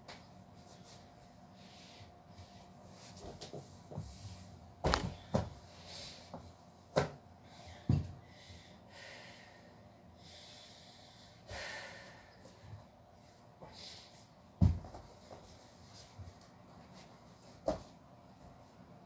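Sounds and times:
soft breaths: 0.7s - 3.2s
dull thumps of feet on mat: 4.8s - 5.6s, 14.6s - 15.5s.

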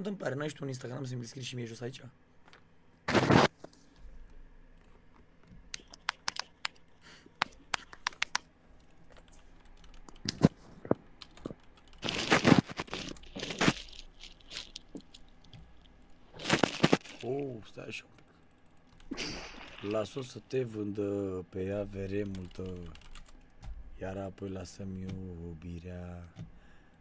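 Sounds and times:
rustling crackling noise: 3.0s - 4.2s, 5.0s - 17.8s.

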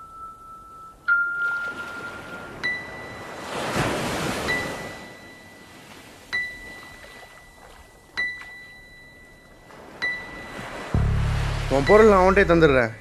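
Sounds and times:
high ringing ding: 0.0s - 3.5s, 4.4s - 5.7s, 6.3s - 11.2s.

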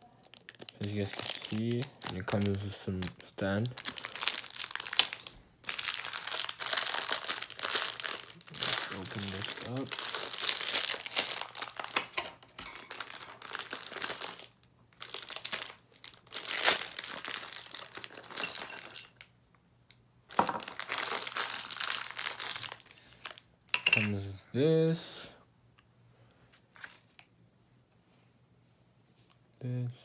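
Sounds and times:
plastic bag crinkling: 0.0s - 19.3s, 20.3s - 24.0s.

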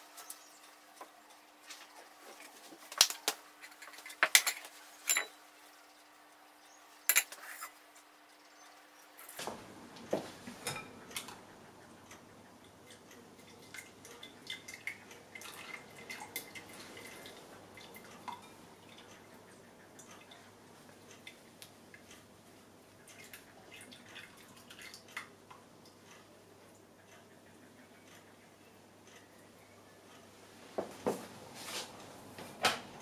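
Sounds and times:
faint drips: 12.0s - 30.2s.

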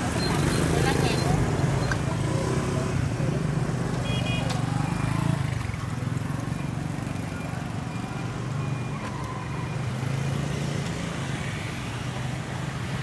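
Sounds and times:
street traffic hum: 0.0s - 13.0s.

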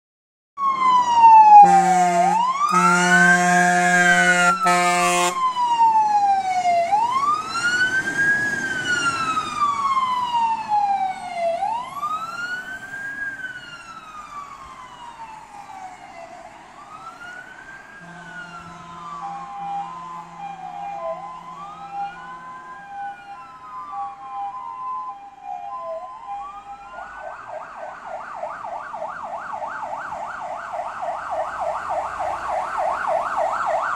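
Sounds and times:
siren fast yelp: 0.6s - 7.9s, 13.0s - 33.9s
fire engine siren wailing: 0.6s - 33.9s
two-note siren: 1.3s - 5.6s, 18.0s - 27.3s
horn blasts: 1.6s - 5.4s, 18.0s - 22.6s.

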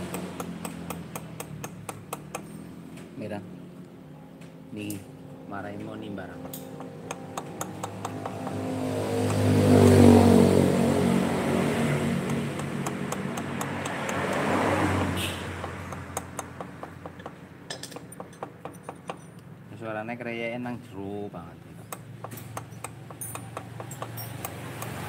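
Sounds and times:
two-stroke motorcycle engine revving: 6.4s - 16.8s.

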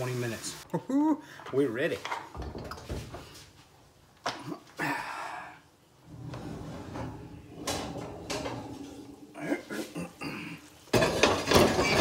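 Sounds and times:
pan scraping: 6.1s - 10.2s.

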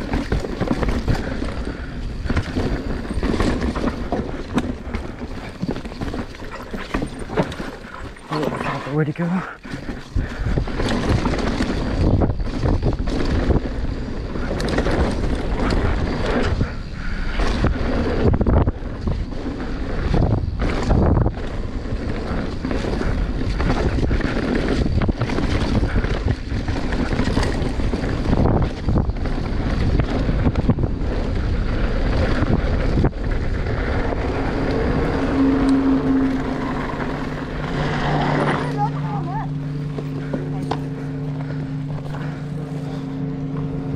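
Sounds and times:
bike knocks and rattles: 0.0s - 8.4s, 9.6s - 34.6s
steady low hum: 0.0s - 43.9s
tyres on dirt: 0.0s - 43.9s
wind rushing over microphone: 0.0s - 43.9s.

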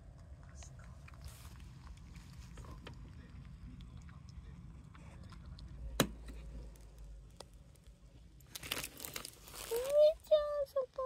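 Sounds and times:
rustling and crinkling: 0.5s - 3.2s, 6.3s - 11.0s.

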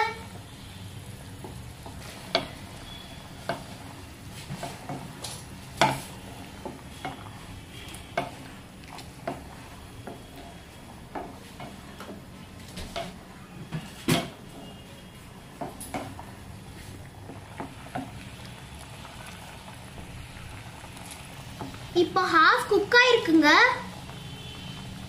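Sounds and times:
water boiling: 0.0s - 25.0s
wooden spatula scraping a pan: 1.4s - 18.2s.

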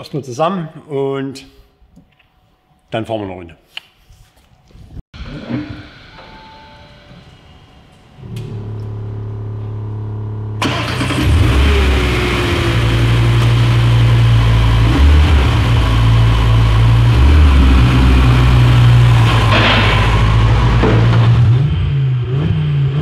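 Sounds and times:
steady low hum: 5.2s - 10.6s
car engine starting and revving: 8.2s - 23.0s.

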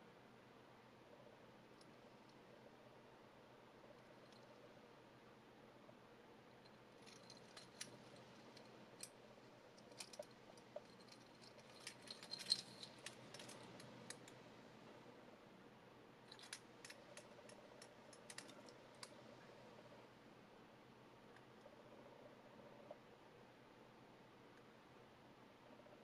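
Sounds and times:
metal watch bracelet clinking: 7.0s - 9.2s, 9.8s - 14.3s.

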